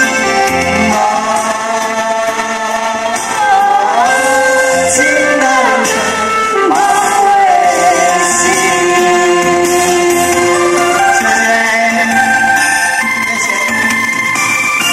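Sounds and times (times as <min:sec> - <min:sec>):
backing music: 0:00.0 - 0:14.9
man and woman singing duet: 0:00.8 - 0:12.6.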